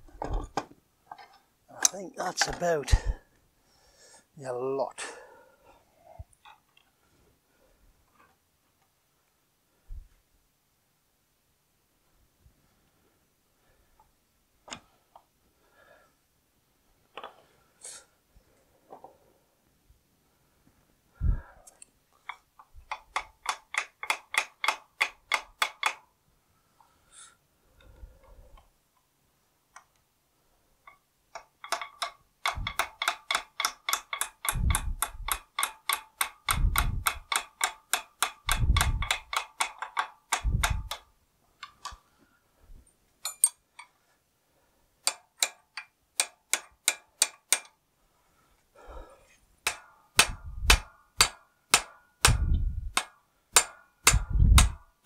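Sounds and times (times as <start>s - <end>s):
hammer tapping steel punch: 22.3s - 26.0s, 30.9s - 41.1s, 43.2s - 43.6s, 45.0s - 47.8s, 49.6s - 54.9s
heavier hammer thumps: 40.4s - 41.0s, 49.6s - 54.8s.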